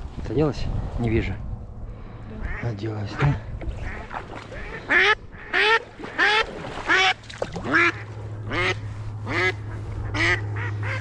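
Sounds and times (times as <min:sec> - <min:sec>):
duck quacking: 0:02.4 - 0:11.0.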